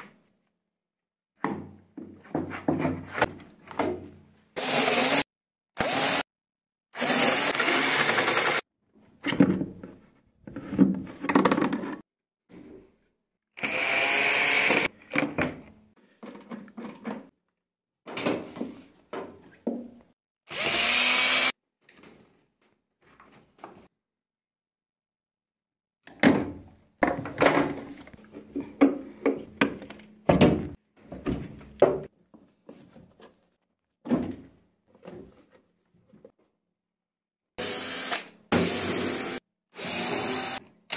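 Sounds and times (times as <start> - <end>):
cordless screwdriver running: 20.5 - 21.5, 37.6 - 40.6.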